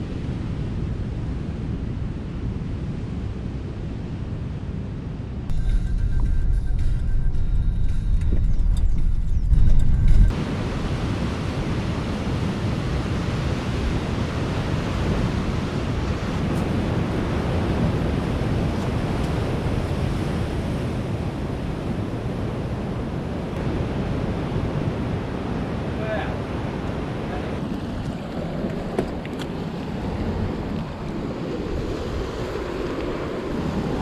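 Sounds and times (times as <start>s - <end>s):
wind on microphone: 0.0s - 34.0s
car road rumble: 5.5s - 10.7s
ocean surf rushing on rocks: 10.3s - 34.0s.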